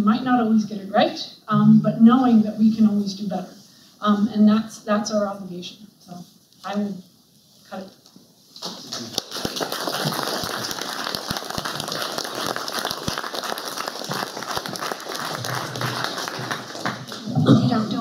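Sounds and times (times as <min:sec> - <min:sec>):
audience applauding: 0:08.6 - 0:17.4.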